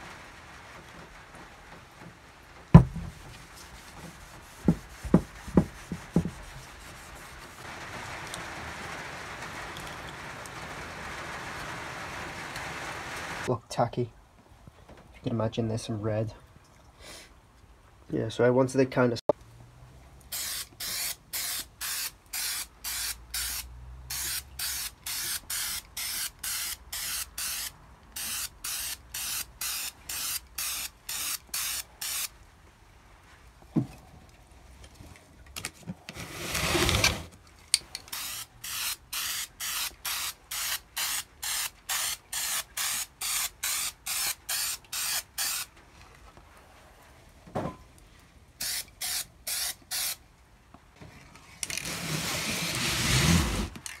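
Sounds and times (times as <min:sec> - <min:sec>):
aerosol spray can hissing: 0:20.3 - 0:32.3, 0:38.1 - 0:45.7, 0:48.6 - 0:50.2.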